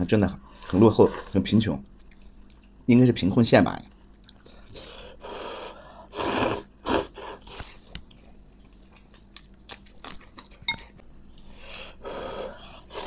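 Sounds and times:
person slurping noodles: 5.4 - 7.6
chewing with crisp crunches: 7.4 - 11.5.

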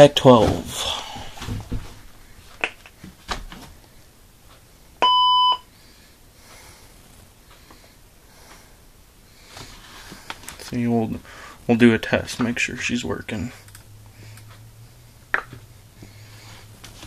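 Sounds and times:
defibrillator steady beep: 5.0 - 5.7.

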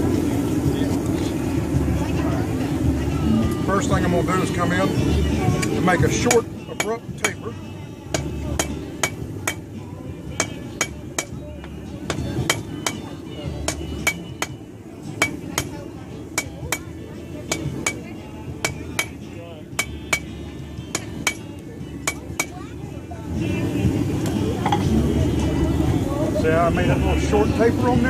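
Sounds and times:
hammer striking iron on anvil: 5.6 - 7.4, 8.1 - 9.7, 10.4 - 11.4, 12.1 - 13.1, 13.7 - 14.6, 15.2 - 15.8, 16.4 - 16.9, 17.5 - 22.6.

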